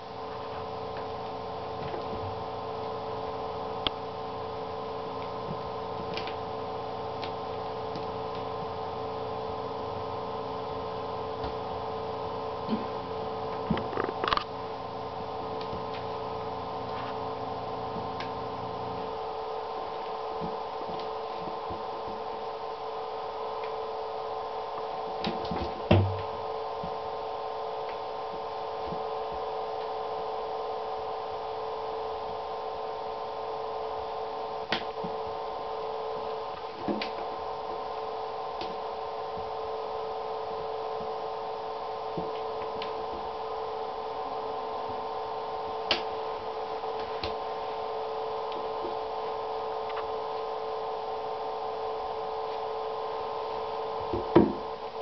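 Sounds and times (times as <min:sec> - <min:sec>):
steady hum: 0:00.0 - 0:55.0
thump: 0:25.9 - 0:26.2, 0:54.2 - 0:54.6.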